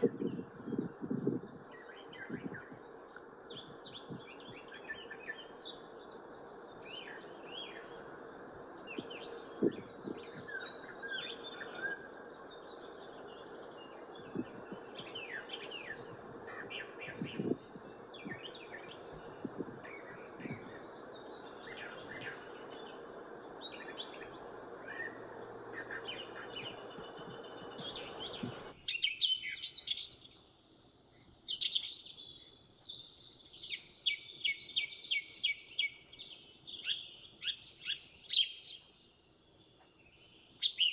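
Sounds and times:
finches chirping and trilling: 0:00.0 - 0:39.4
background hiss: 0:00.0 - 0:40.9.

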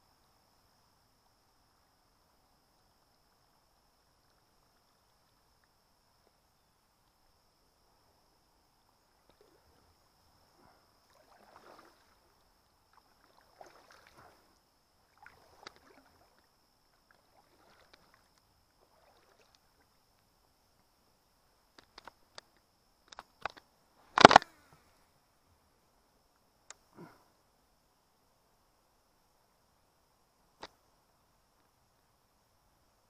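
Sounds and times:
paddle swishing in water: 0:10.6 - 0:12.4, 0:13.0 - 0:16.5, 0:17.1 - 0:19.9
sharp clicks: 0:23.1 - 0:24.5.

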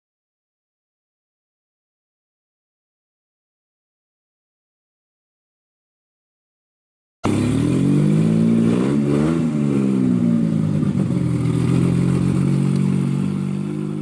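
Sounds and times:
car engine revving and idling: 0:07.2 - 0:14.0.

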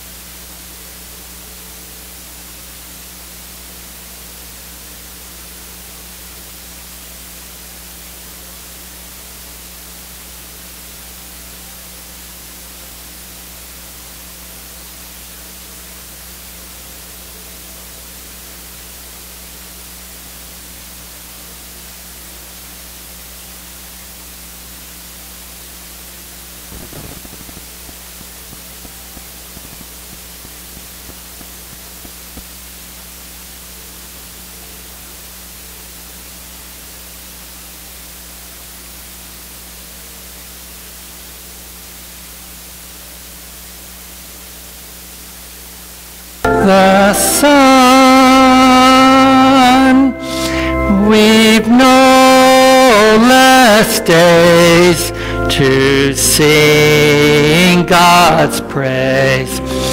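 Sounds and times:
electrical hiss: 0:00.0 - 0:59.9
low mains hum: 0:00.0 - 0:59.9
brief crackle: 0:26.7 - 0:32.7
faint ticks: 0:26.8 - 0:32.5.

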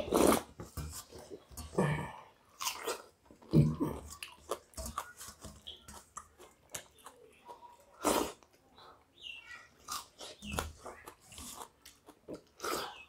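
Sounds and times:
wet chewing: 0:02.5 - 0:08.6, 0:09.7 - 0:13.0.

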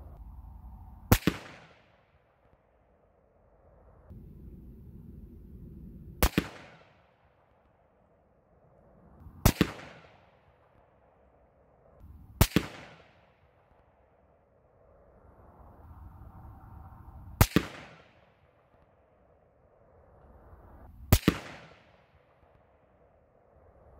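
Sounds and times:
rifle shots: 0:01.1 - 0:01.9, 0:06.2 - 0:07.0, 0:09.4 - 0:10.2, 0:12.4 - 0:13.2, 0:21.1 - 0:22.0.

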